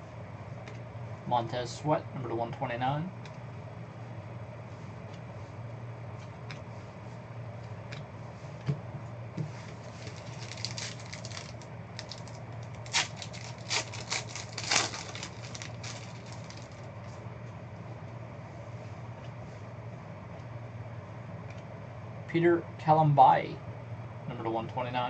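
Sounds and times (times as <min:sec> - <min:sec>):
steady low hum: 0:00.0 - 0:25.0
crackling foil packs rustling: 0:09.6 - 0:17.2.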